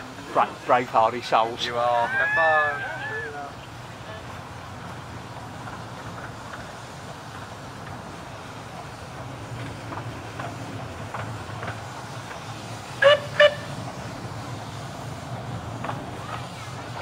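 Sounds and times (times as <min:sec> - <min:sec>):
train rumbling: 0:00.0 - 0:17.0
steam locomotive whistle: 0:12.9 - 0:13.8.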